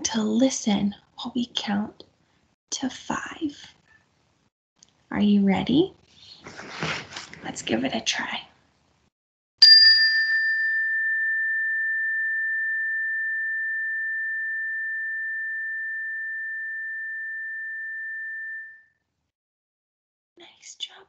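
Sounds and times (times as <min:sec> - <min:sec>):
tone bar struck with mallet: 0:09.6 - 0:18.7.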